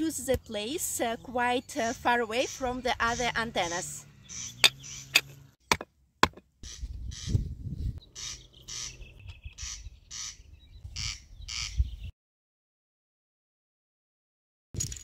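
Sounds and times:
stone knocking metal mast: 0:04.6 - 0:06.5.

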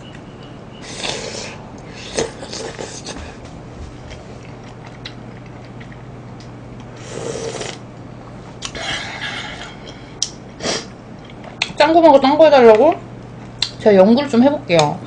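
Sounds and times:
slurping broth: 0:07.0 - 0:07.8.

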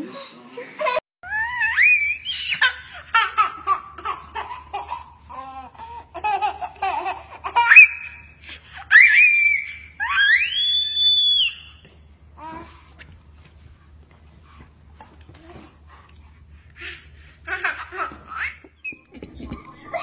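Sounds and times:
baby squealing: 0:01.2 - 0:02.8
baby giggling: 0:17.5 - 0:20.0.

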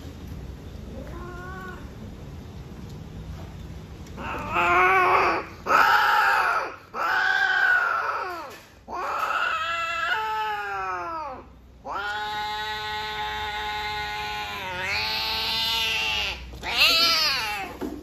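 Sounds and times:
cat yowling: 0:04.2 - 0:17.8.

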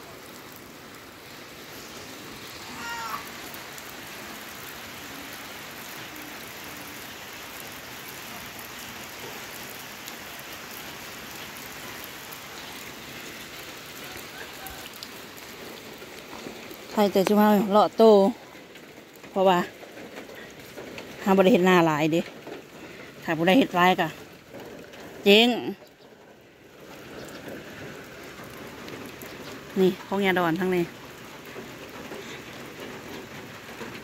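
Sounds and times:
steady rain falling: 0:00.0 - 0:34.0
animal call: 0:02.6 - 0:03.4.

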